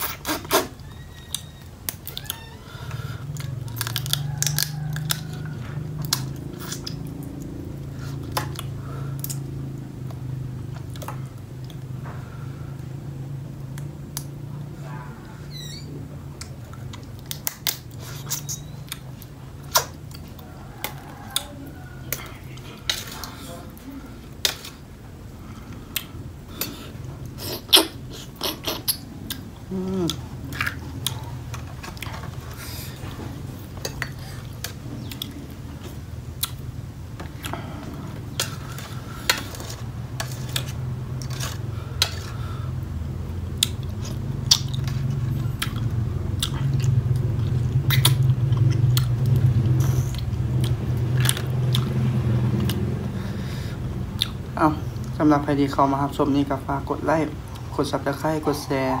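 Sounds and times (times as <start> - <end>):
chewing: 0.0 - 12.3, 16.3 - 53.3, 54.1 - 55.2
crab shells cracking: 3.4 - 7.1.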